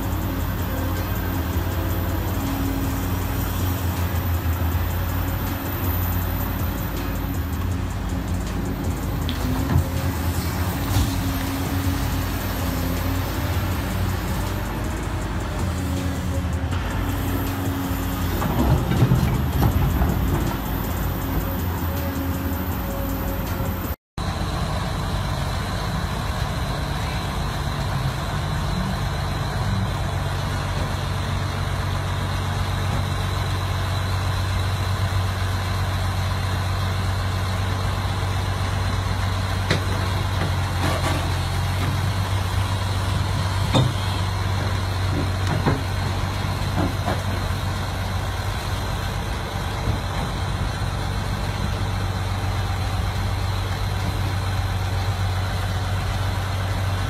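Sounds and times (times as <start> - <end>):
heavy diesel machinery humming: 0.0 - 57.0
knocks and clanks: 6.6 - 22.6, 43.1 - 47.7.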